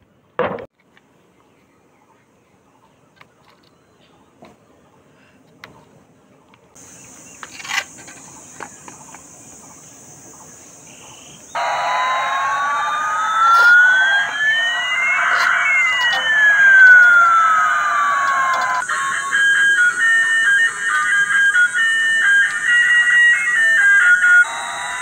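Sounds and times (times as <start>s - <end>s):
toy electronic jet sound effect: 11.5s - 25.0s.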